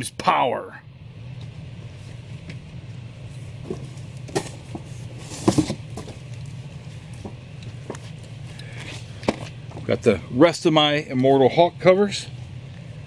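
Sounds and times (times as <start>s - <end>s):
steady low hum: 0.0s - 13.0s
rustles and knocks of cardboard box: 3.6s - 6.4s.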